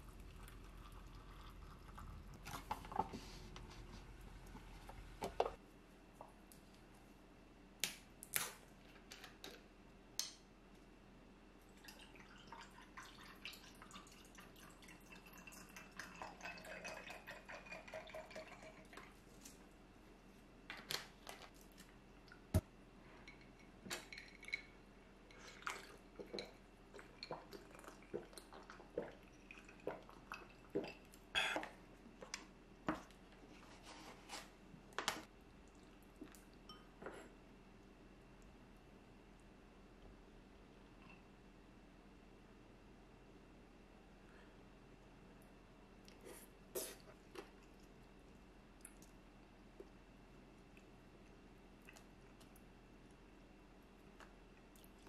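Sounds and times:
hot water pouring into cup: 0.0s - 3.1s, 11.8s - 19.1s.

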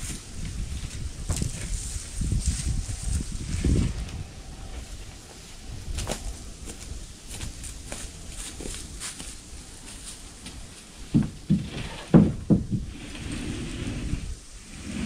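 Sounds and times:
footsteps on gravel and dry leaves: 5.9s - 11.0s
heavy thuds on wooden steps: 11.1s - 12.9s.

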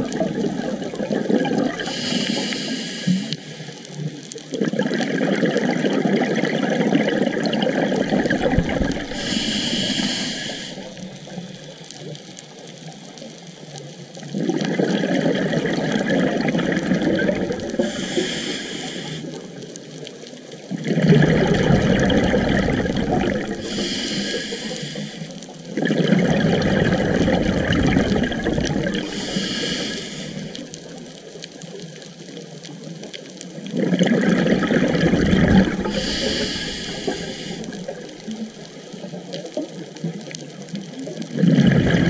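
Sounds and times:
exhaled bubbles rushing: 0.0s - 2.6s, 3.2s - 11.5s, 14.2s - 19.7s, 20.7s - 31.1s, 33.5s - 39.1s, 41.2s - 42.0s
scuba regulator hissing inhalation: 1.7s - 3.9s, 8.1s - 11.1s, 16.8s - 19.5s, 21.2s - 25.5s, 26.5s - 30.8s, 34.7s - 38.3s.

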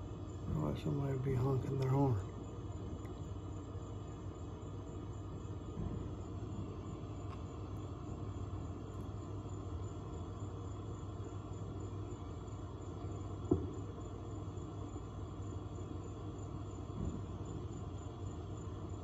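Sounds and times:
outdoor background rumble: 0.0s - 19.0s
brief knock: 13.5s - 13.7s.

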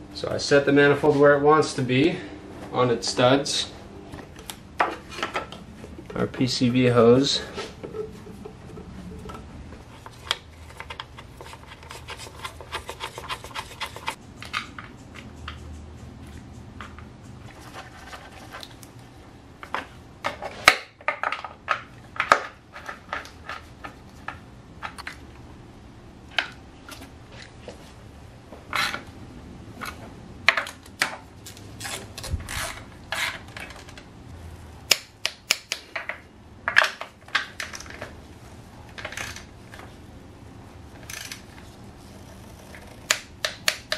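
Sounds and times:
rubber hose rubbing and scraping: 7.0s - 14.2s, 31.5s - 33.9s, 40.9s - 43.1s.

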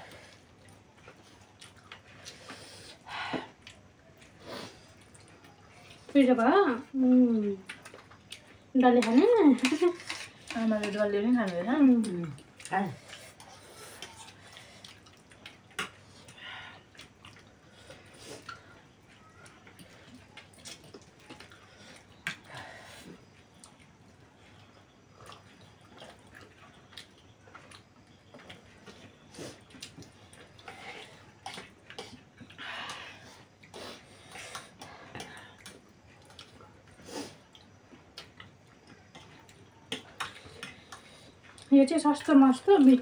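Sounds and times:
people chewing: 0.0s - 43.0s.

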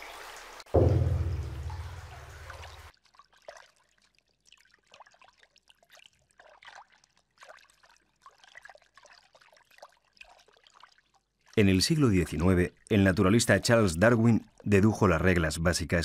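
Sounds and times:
rain falling: 0.0s - 2.9s
water dripping and trickling: 0.0s - 16.0s
thunder rumbling: 0.8s - 2.7s.

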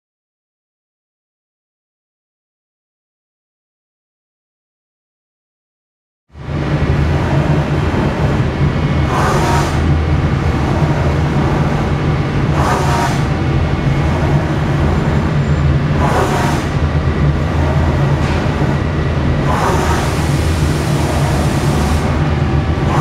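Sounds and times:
lathe humming: 6.4s - 23.0s.

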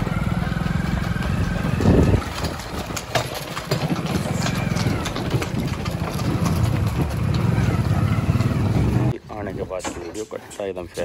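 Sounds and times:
engine idling: 0.0s - 9.1s.

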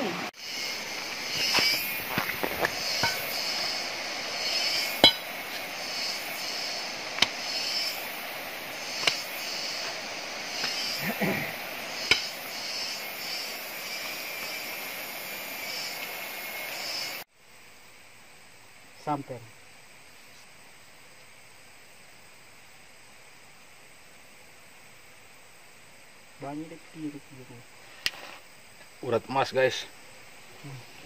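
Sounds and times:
insects chirring: 0.0s - 31.0s
footsteps on stony trail: 0.8s - 3.8s, 8.9s - 11.0s
sharp knocks and clinks: 5.0s - 5.6s.

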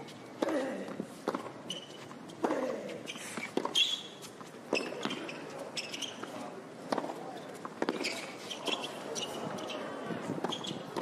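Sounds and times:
shoe squeaks: 1.3s - 6.4s, 7.8s - 11.0s.

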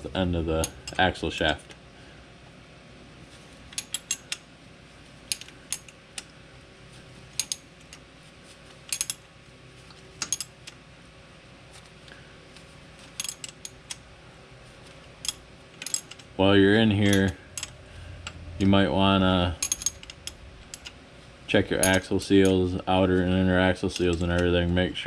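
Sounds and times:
wrench metallic clicks: 3.7s - 4.4s, 7.4s - 7.6s, 8.9s - 9.2s, 15.2s - 16.3s, 19.6s - 21.0s.

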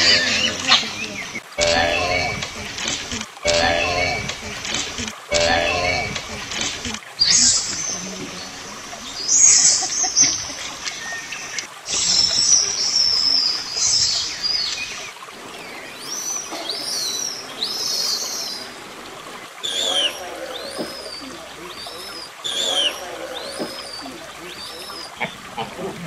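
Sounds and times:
rising and falling whistled calls: 0.0s - 4.6s, 7.2s - 26.0s
hissy chirping bursts: 9.2s - 15.1s.

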